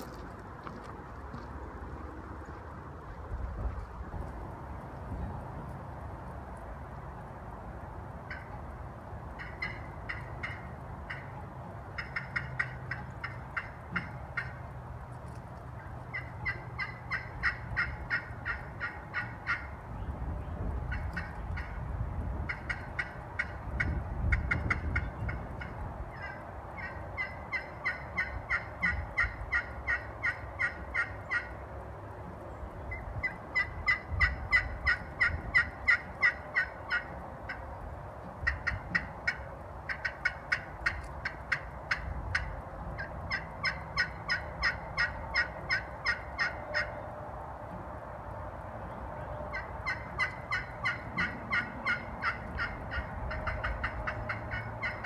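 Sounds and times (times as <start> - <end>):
turkey call yelps: 9.4 - 11.3, 12.0 - 14.6, 16.1 - 19.7, 20.9 - 21.8, 22.5 - 31.5, 32.9 - 37.6, 38.4 - 47.0, 49.5 - 55.0.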